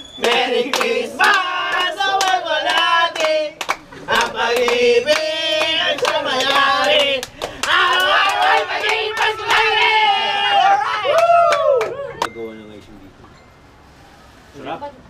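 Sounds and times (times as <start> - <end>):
hands clapping in rhythm: 0.2 - 9.9
group singing birthday song: 0.2 - 10.8.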